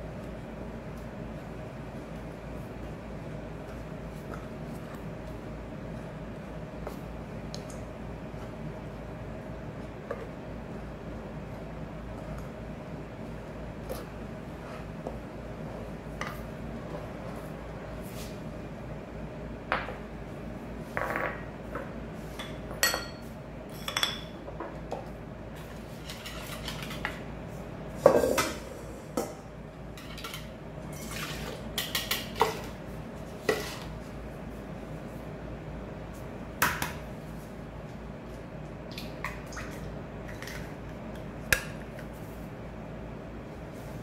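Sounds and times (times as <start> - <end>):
steady low hum: 0.0 - 44.0.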